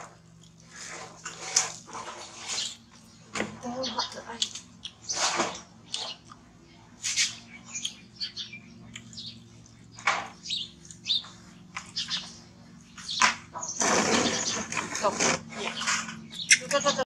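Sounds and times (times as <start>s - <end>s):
baby monkeys squeaking: 3.6s - 6.3s, 13.0s - 17.0s.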